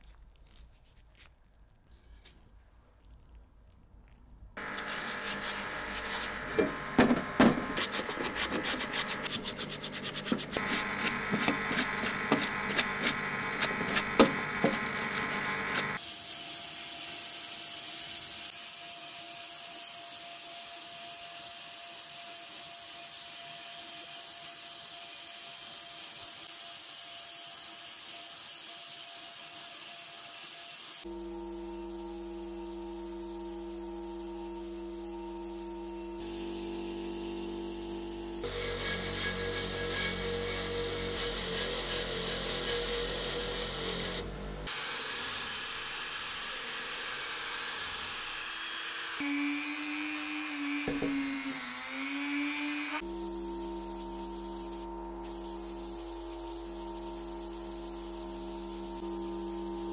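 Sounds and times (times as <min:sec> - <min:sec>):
rubbing strokes on workpiece: 0:04.6 - 0:06.8, 0:07.7 - 0:18.5.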